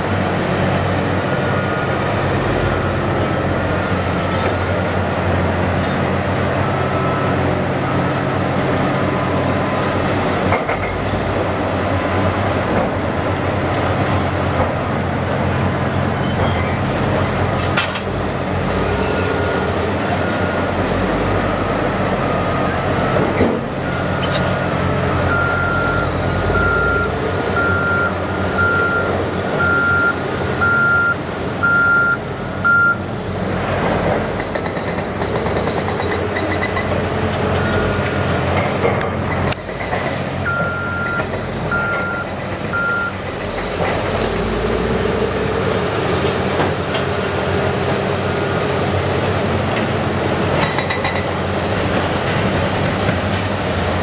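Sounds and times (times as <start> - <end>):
diesel engines running: 0.0 - 54.0
back-up alarm beeping: 23.9 - 33.0, 40.4 - 43.2.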